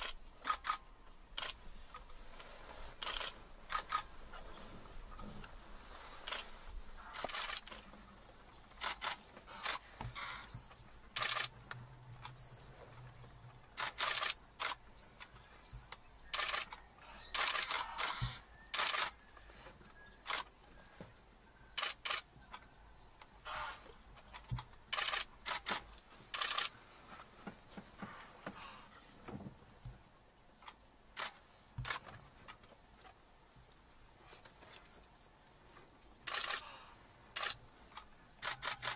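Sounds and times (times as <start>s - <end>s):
camera shutters clicking: 0.0s - 0.8s, 3.0s - 4.1s, 6.2s - 6.5s, 7.1s - 7.9s, 8.8s - 10.3s, 11.1s - 11.5s, 13.8s - 14.8s, 16.3s - 19.2s, 24.9s - 26.7s, 36.3s - 36.7s, 37.4s - 37.6s, 38.4s - 38.9s.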